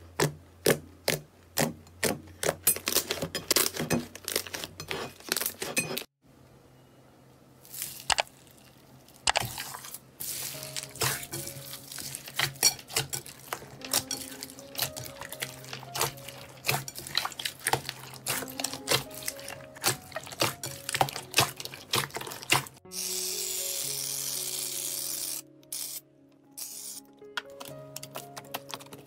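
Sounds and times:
slime squelching and popping: 0:07.7 - 0:22.8
soft background music: 0:10.2 - 0:29.0.

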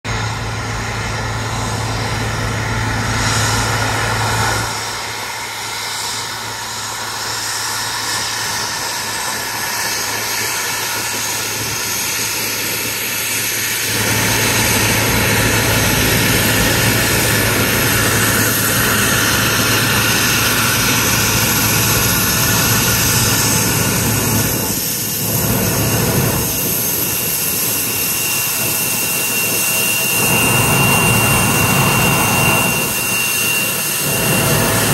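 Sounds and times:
jet engines whining at taxi power: 0:00.0 - 0:34.9.

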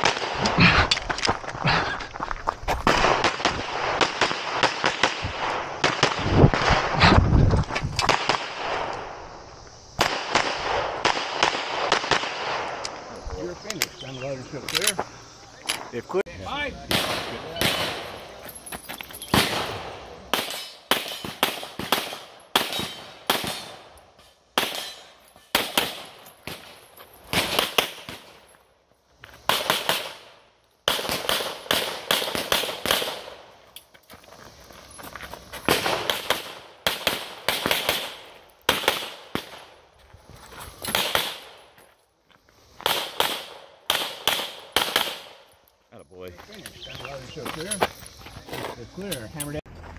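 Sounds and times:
rapid pistol fire: 0:10.0 - 0:12.7, 0:19.4 - 0:23.9, 0:24.6 - 0:26.7, 0:29.5 - 0:33.4, 0:35.7 - 0:39.7, 0:40.9 - 0:41.6, 0:42.8 - 0:45.5.

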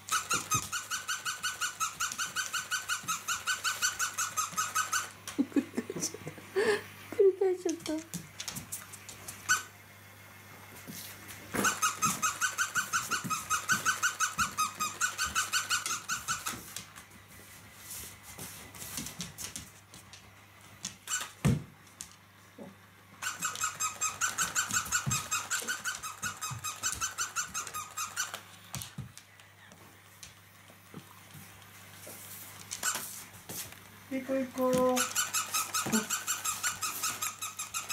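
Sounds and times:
dog chewing toy: 0:00.0 - 0:05.2, 0:11.6 - 0:16.6, 0:23.2 - 0:29.3, 0:34.6 - 0:37.9
squeaky toy squeaking: 0:00.1 - 0:05.2, 0:09.5 - 0:09.7, 0:11.6 - 0:16.6, 0:21.1 - 0:21.4, 0:23.2 - 0:28.5, 0:32.8 - 0:33.0, 0:34.8 - 0:37.9.

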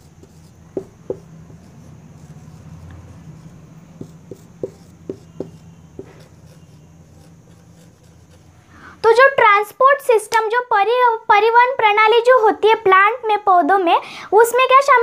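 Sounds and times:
marker writing on whiteboard: 0:00.0 - 0:09.2
steady low hum: 0:00.0 - 0:09.4.

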